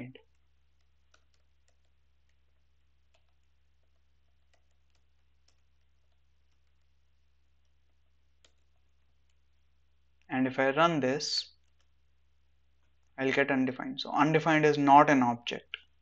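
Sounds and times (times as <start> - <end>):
computer keyboard keystrokes: 0.2 - 6.9, 8.4 - 9.4.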